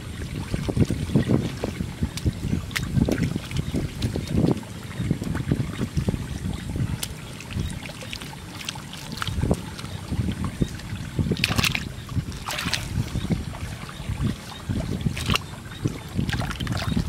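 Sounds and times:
hands sloshing in muddy water: 0:00.0 - 0:17.0
water splashes: 0:00.0 - 0:17.0
wet mud squelching: 0:05.3 - 0:17.0.

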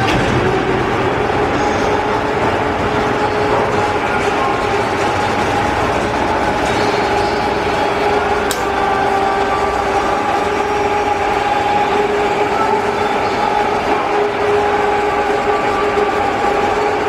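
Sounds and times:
machine drone: 0:00.0 - 0:17.0
sharp click: 0:08.5 - 0:08.7.

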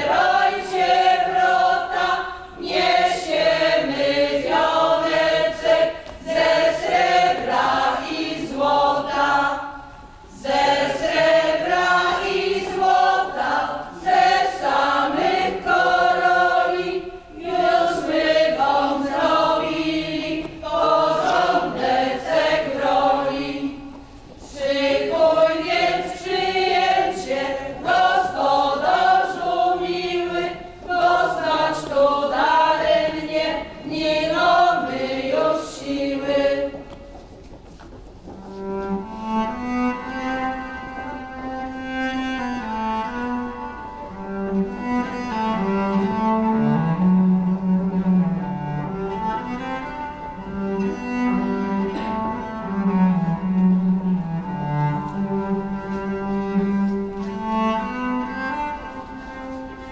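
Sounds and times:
mixed choir singing folk song: 0:00.0 - 0:37.2.

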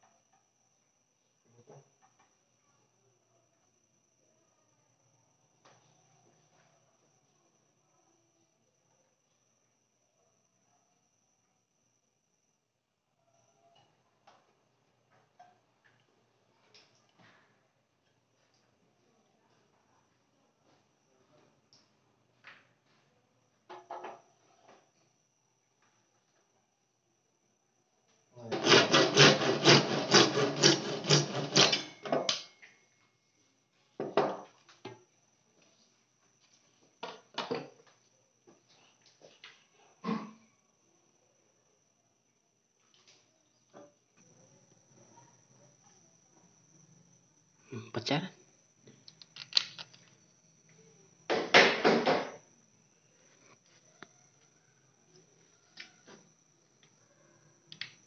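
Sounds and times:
hand tool rasping on plastic pipe: 0:28.5 - 0:32.0
pipe scraping and knocking: 0:28.5 - 0:32.2.

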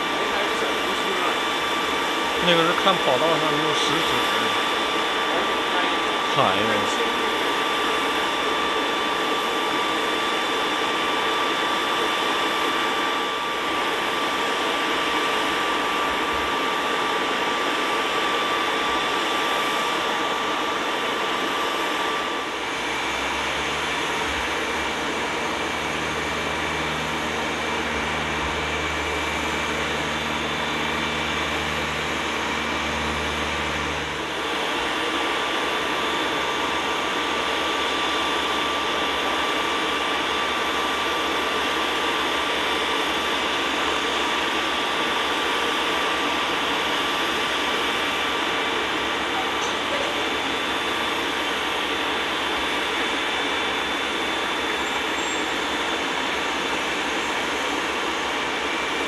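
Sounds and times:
jet engines whining: 0:00.0 - 0:59.0
low hum: 0:20.0 - 0:41.6.

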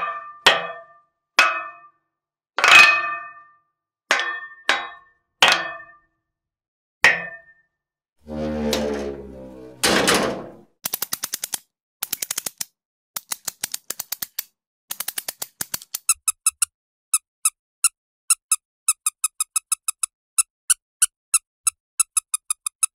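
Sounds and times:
short high-pitched squeaks: 0:08.3 - 0:09.8
quick rattling clicks: 0:10.8 - 0:16.4.

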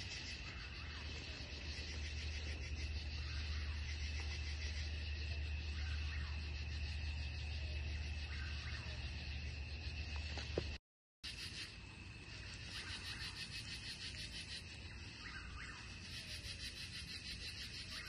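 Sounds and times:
crickets and insects trilling: 0:00.0 - 0:18.0.

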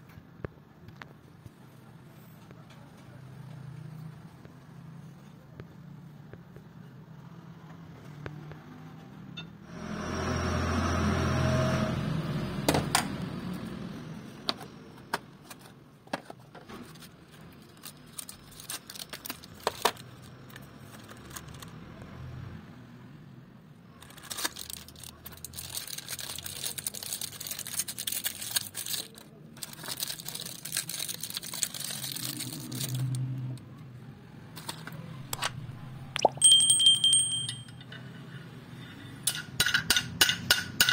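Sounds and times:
cardboard and plastic crinkling: 0:16.6 - 0:21.7, 0:24.0 - 0:33.1.

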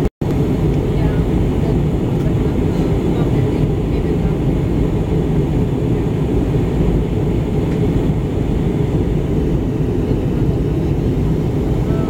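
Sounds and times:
jet airliner cabin rumble: 0:00.0 - 0:12.0.

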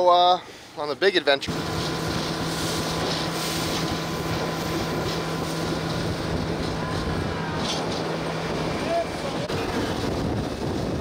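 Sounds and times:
water rushing along hull: 0:00.4 - 0:11.0
boat motor running: 0:01.4 - 0:11.0
wind on microphone: 0:01.5 - 0:11.0.

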